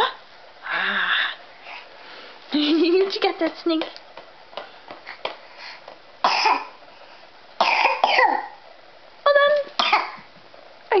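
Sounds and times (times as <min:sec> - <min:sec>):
person coughing: 0:06.3 - 0:06.7, 0:07.6 - 0:08.5.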